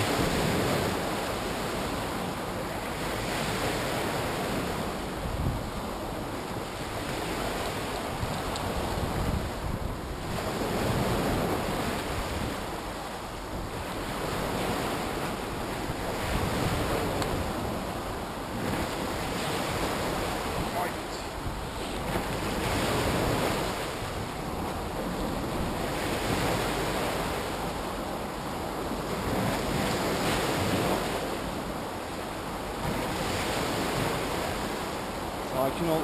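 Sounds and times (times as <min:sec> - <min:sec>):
sea waves breaking on shore: 0:00.0 - 0:36.0
wind buffeting microphone: 0:03.3 - 0:31.9.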